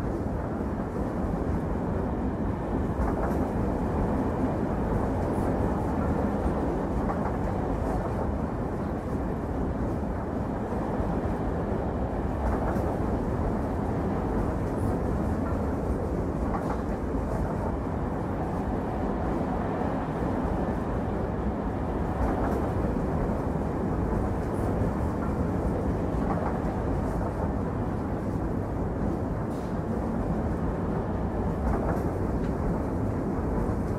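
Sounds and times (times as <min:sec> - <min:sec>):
train rumbling along the line: 0:00.0 - 0:33.9.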